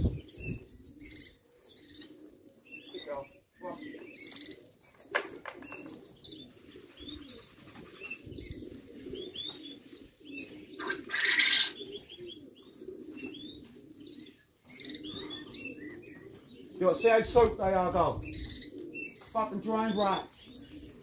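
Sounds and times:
high chirping calls: 0.0s - 2.1s
pigeons cooing: 0.0s - 21.0s
wings flapping: 5.0s - 11.8s.

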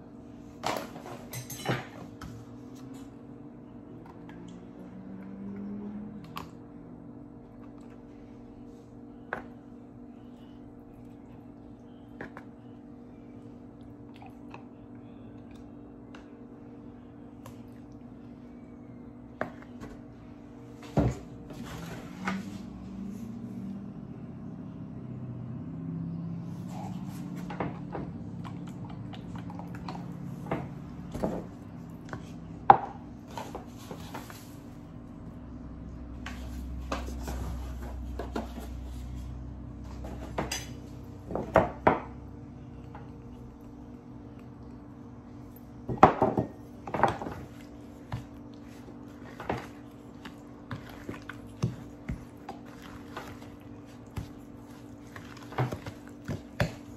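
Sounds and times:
steady low hum: 0.0s - 56.9s
kitchenware clinks and knocks: 0.6s - 2.2s.

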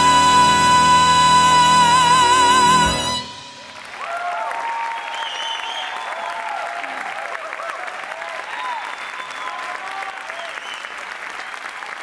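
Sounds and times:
woman singing with vibrato: 0.0s - 3.8s
big band playing: 0.0s - 4.2s
audience applauding and cheering: 0.0s - 12.0s.

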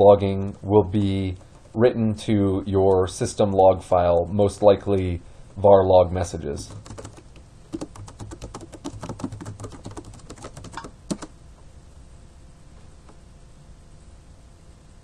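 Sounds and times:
typing on computer keyboard: 6.7s - 11.3s.

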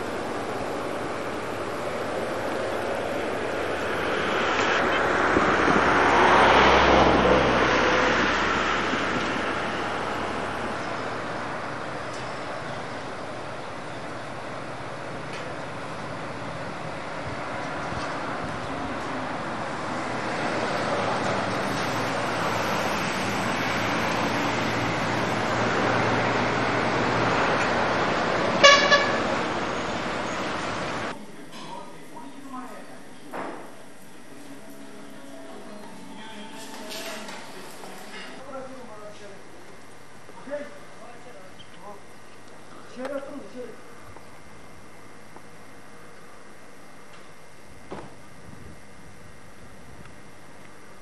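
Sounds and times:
low engine rumble: 0.0s - 31.4s
road traffic noise: 0.0s - 31.5s, 33.2s - 42.9s
vehicle passing by: 3.2s - 11.7s
vehicle horn tooting: 28.6s - 29.4s.

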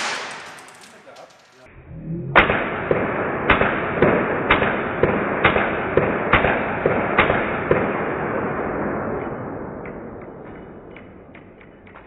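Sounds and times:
rapid gunshots: 0.0s - 0.9s, 2.4s - 9.2s.

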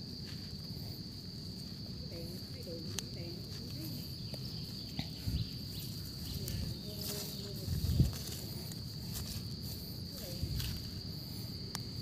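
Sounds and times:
insects droning: 0.0s - 12.0s
hands digging in dry soil: 2.9s - 12.0s.

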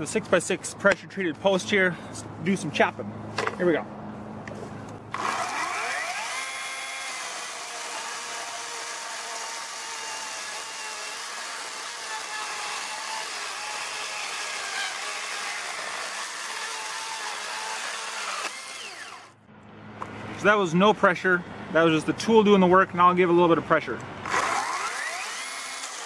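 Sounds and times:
electric chainsaw cutting wood: 5.1s - 19.4s, 24.2s - 26.0s.

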